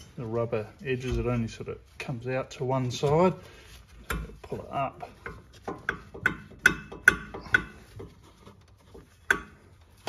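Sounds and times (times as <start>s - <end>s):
metal knocks and clunks: 4.0s - 10.0s.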